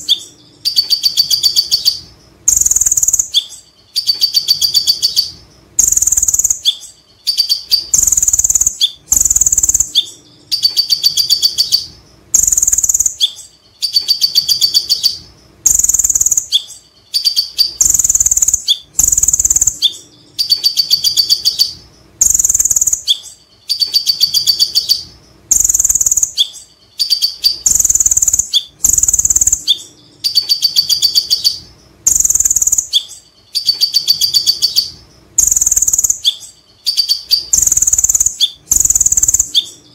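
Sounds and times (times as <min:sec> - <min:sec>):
sunbird rattling chatter: 0:36.9 - 0:39.6.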